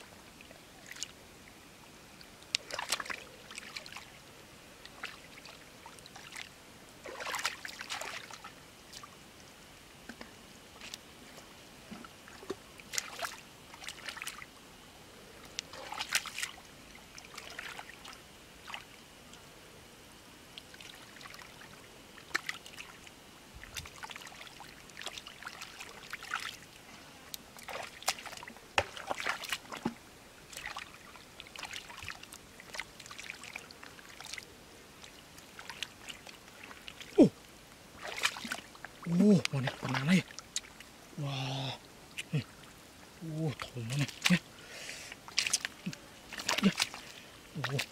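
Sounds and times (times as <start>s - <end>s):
squelching and splashing in mud: 2.5s - 4.1s, 4.9s - 9.1s, 12.3s - 14.5s, 15.6s - 16.6s, 17.2s - 18.9s, 20.6s - 23.0s, 23.7s - 26.6s, 27.6s - 37.4s, 38.0s - 42.5s, 43.3s - 47.9s.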